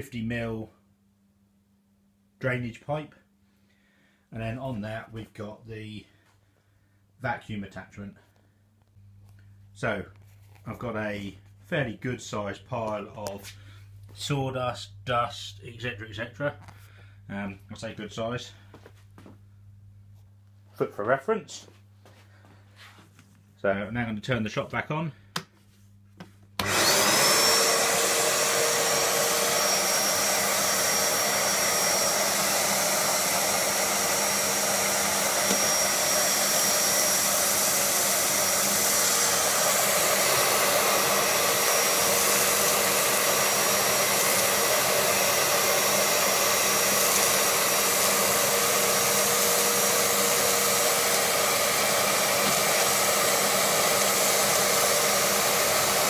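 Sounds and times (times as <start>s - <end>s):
sawdust sucked up hose: 26.6s - 56.0s
vacuum motor whine: 26.6s - 56.0s.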